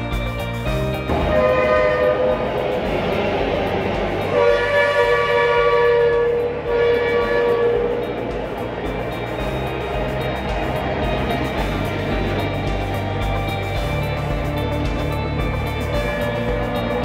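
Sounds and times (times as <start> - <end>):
street traffic passing: 0.0 - 17.0
vehicle horn blasts: 1.1 - 2.8, 4.2 - 8.4.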